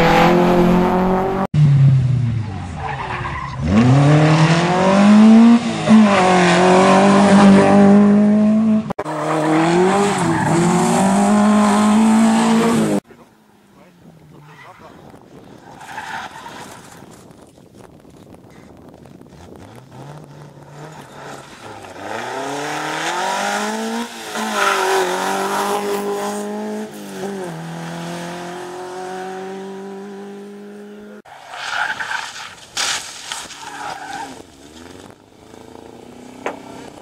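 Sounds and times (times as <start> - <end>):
rally car engine revving: 0.0 - 13.0, 19.2 - 31.3
tyres sliding on gravel: 31.3 - 35.2.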